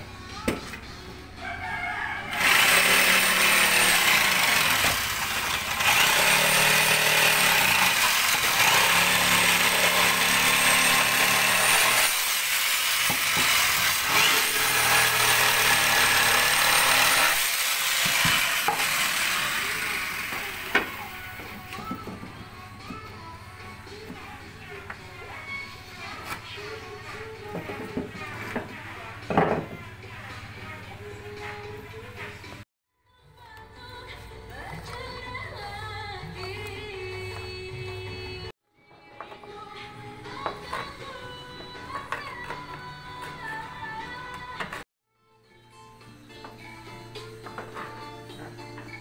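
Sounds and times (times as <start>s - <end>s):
electric jigsaw sawing wood: 2.3s - 21.2s.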